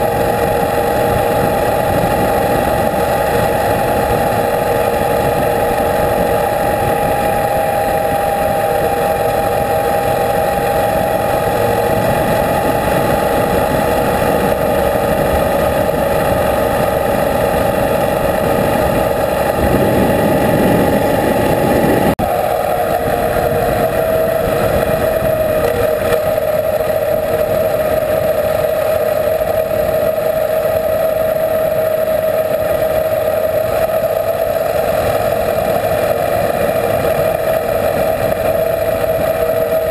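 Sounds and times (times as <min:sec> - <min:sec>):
wind rushing: 0:00.0 - 0:28.2
motorcycle engine cruising: 0:00.0 - 0:39.9.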